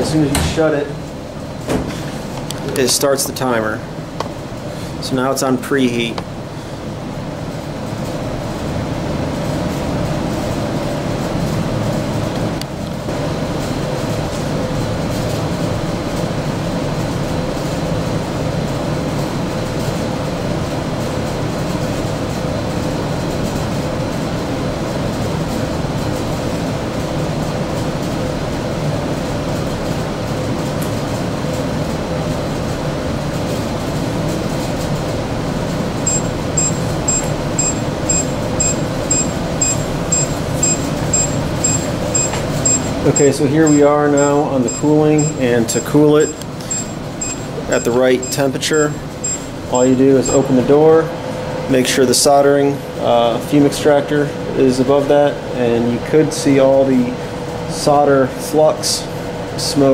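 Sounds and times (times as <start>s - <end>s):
oven fan humming: 0.0s - 59.9s
short high alarm beeps: 36.1s - 50.5s.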